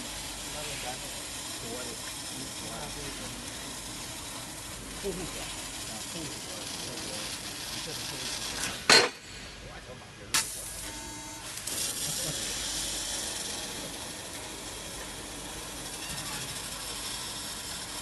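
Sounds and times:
hiss of laser cutting gas jet: 0:11.6 - 0:13.8.

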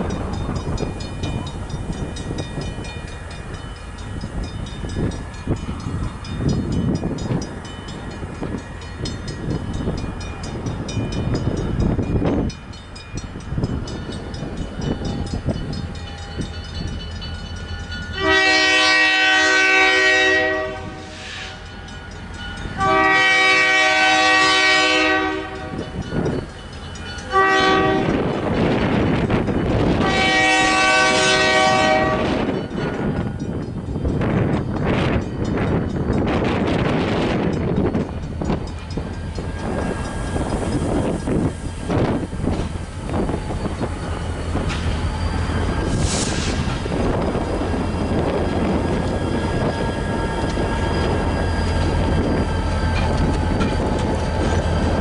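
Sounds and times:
diesel locomotive rumbling: 0:00.0 - 0:55.0
train horn blasts: 0:18.1 - 0:21.6, 0:22.8 - 0:26.0, 0:27.3 - 0:28.4, 0:29.8 - 0:32.6.

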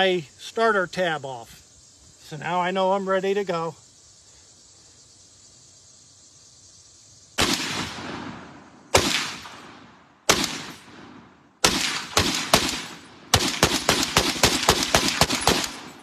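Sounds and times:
machine gun firing with echo: 0:11.6 - 0:16.0.

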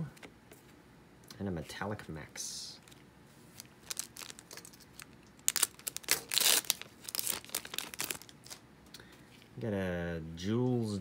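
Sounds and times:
foil wrapper crinkling and tearing: 0:02.8 - 0:08.6.

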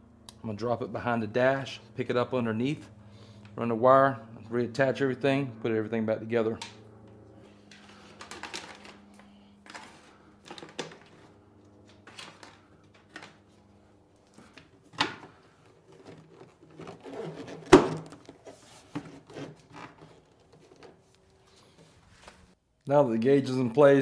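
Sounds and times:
wire harness rustling and rubbing: 0:07.4 - 0:22.6.

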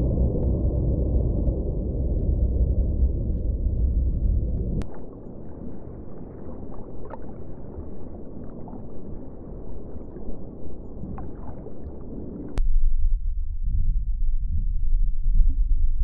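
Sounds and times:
underwater water noise: 0:00.0 - 0:12.6
deep underwater rumble: 0:00.0 - 0:16.0.

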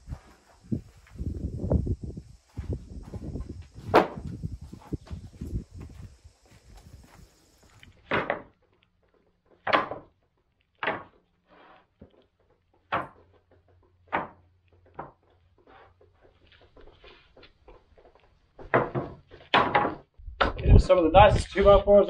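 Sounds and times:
wooden boards knocking: 0:03.8 - 0:04.3, 0:08.0 - 0:08.5, 0:09.5 - 0:10.1, 0:10.8 - 0:11.2, 0:12.8 - 0:15.2, 0:18.6 - 0:20.6.

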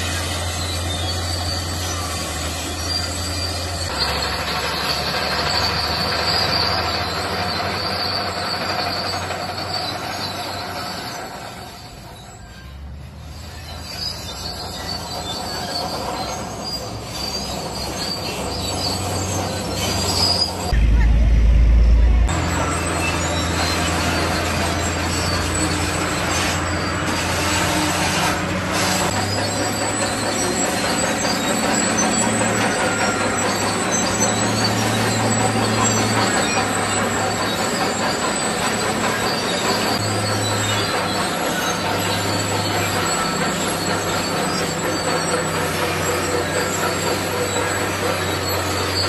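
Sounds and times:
bulldozer diesel engine running: 0:00.0 - 0:49.0
steel tracks squealing and clanking: 0:00.0 - 0:49.0
loud low rumble: 0:20.7 - 0:22.8.

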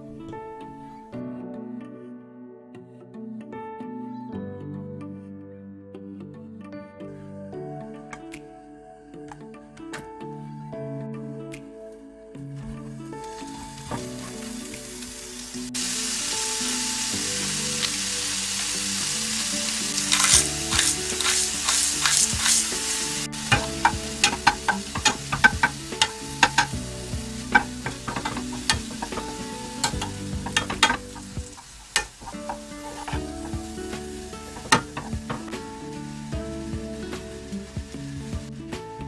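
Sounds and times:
meat sizzling in a frying pan: 0:13.4 - 0:38.3
spatula scraping and knocking pan: 0:19.9 - 0:35.6.

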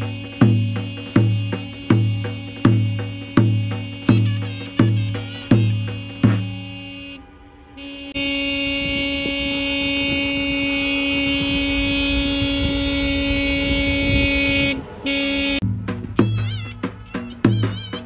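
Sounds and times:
drum beat: 0:00.0 - 0:07.0, 0:15.5 - 0:18.0
road and engine rumble: 0:00.0 - 0:18.0
vehicle horn blast: 0:00.0 - 0:18.0.

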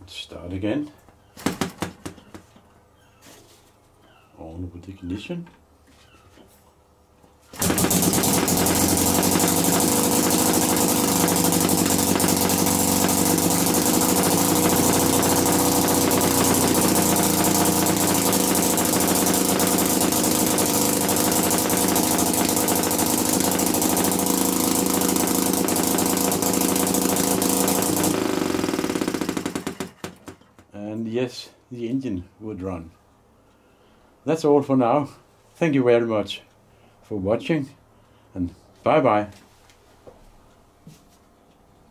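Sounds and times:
model engine running: 0:07.6 - 0:30.0.

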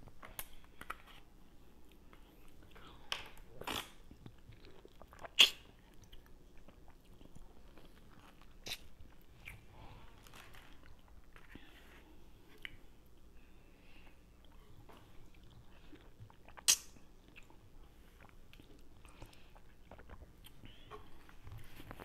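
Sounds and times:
wet mouth sounds: 0:03.6 - 0:07.2, 0:15.4 - 0:17.6, 0:18.2 - 0:21.0
biting and chewing grapefruit: 0:18.2 - 0:22.0.

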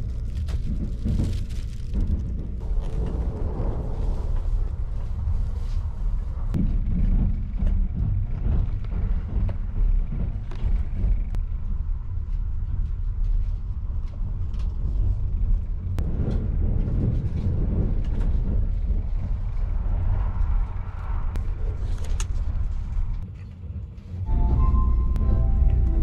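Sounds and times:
train rumble inside cabin: 0:00.0 - 0:26.0.

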